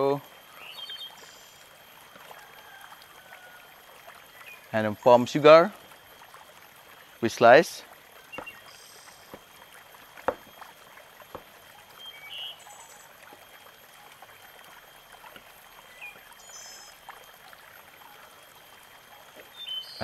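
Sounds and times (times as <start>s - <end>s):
faint steady hiss: 0.0s - 20.0s
knife knocking on cutting board: 10.3s - 10.6s.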